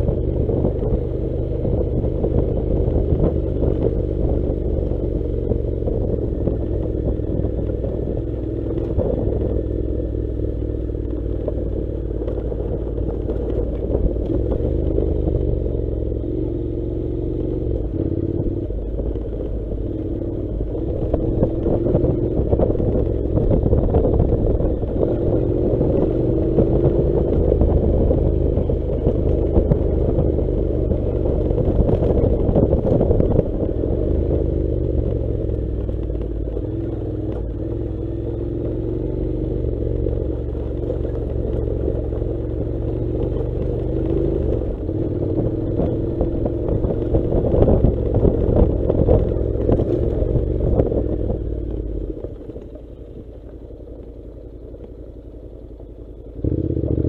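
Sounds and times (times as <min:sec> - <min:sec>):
motorcycle engine revving: 0:00.0 - 0:57.0
knocks from rough dirt track: 0:40.0 - 0:54.2.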